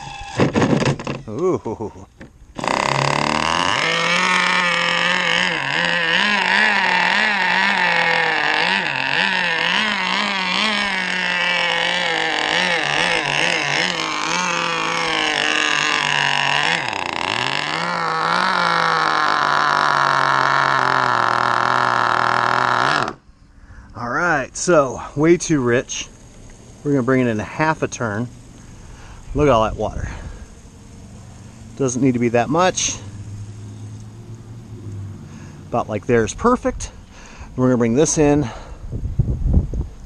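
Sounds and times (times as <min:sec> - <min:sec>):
model boat engine running: 0:02.6 - 0:23.3.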